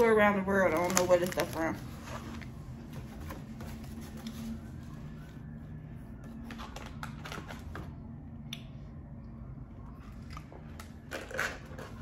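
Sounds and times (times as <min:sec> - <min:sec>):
plastic packaging crinkling: 0:00.0 - 0:02.4
low steady hum: 0:00.0 - 0:12.0.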